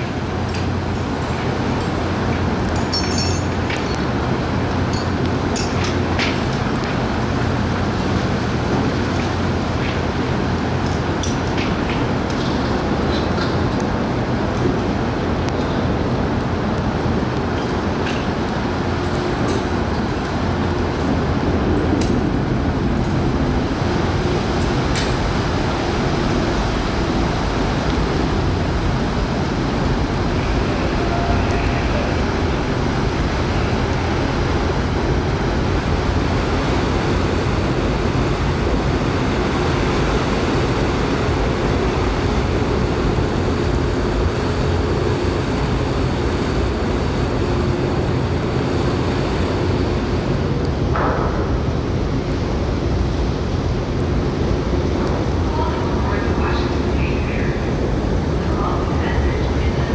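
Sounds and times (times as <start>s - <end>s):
churning propeller wash: 0.0s - 59.9s
ferry engines deep rumble: 0.0s - 59.9s.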